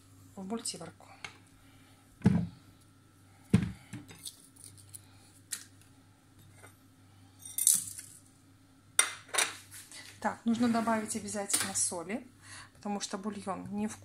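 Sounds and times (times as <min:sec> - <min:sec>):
dull thuds in a pot: 0:02.2 - 0:02.5, 0:03.5 - 0:04.1.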